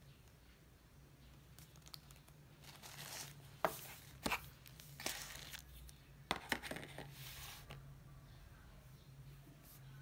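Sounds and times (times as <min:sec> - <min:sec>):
paper wrapper rustling: 0:01.8 - 0:05.7.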